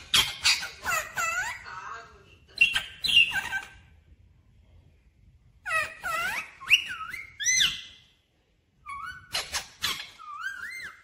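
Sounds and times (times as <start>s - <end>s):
parakeet whistle-like calls: 5.7s - 8.1s, 8.8s - 11.0s.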